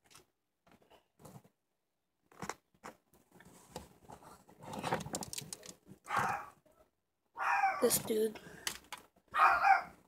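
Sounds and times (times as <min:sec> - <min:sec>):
plastic figures clattering in a tub: 0:04.6 - 0:05.9.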